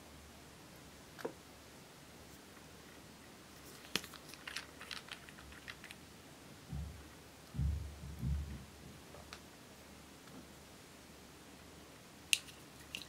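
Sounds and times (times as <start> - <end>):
small ticks and scrapes: 3.6 - 6.0.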